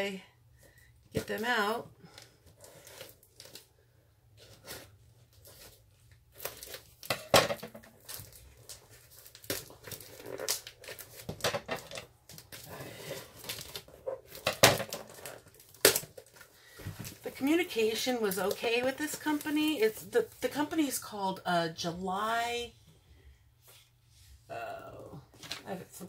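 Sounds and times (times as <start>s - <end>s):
package wrapping tearing: 8.0s - 11.3s.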